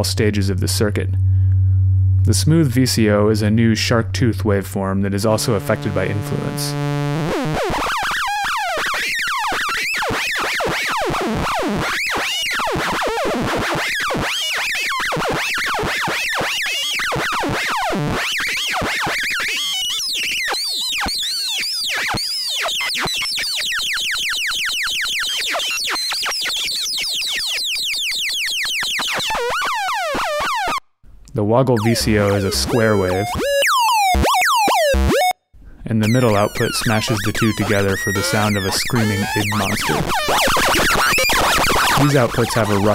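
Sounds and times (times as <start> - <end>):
synthesizer oscillator gliding pitch: 1.3 - 9.1, 31.8 - 35.4, 36.0 - 42.9.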